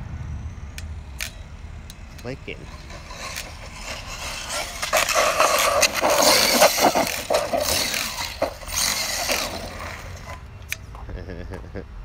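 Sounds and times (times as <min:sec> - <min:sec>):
differential clicking: 0:00.7 - 0:11.0
drivetrain rattling: 0:02.0 - 0:10.5
tyres scraping on asphalt: 0:02.1 - 0:11.1.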